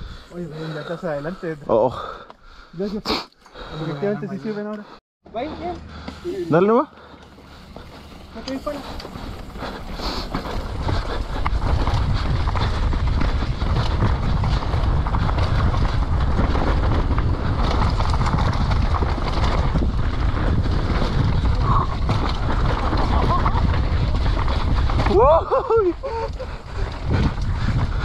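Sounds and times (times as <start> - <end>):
bike tyres rumbling on dirt: 5.4 - 28.0
chain and suspension clatter: 6.5 - 28.0
wind buffeting microphone: 7.3 - 28.0.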